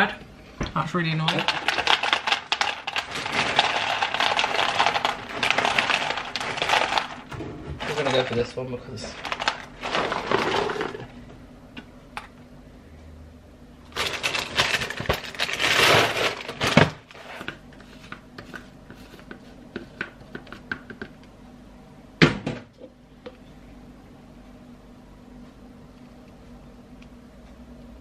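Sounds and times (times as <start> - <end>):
cereal rattling into plastic tub: 1.0 - 11.1, 13.9 - 17.1.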